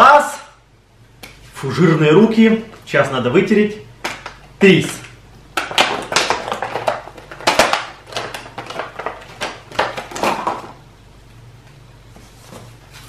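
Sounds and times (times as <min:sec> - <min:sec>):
plastic packaging crinkling: 0:05.7 - 0:10.8.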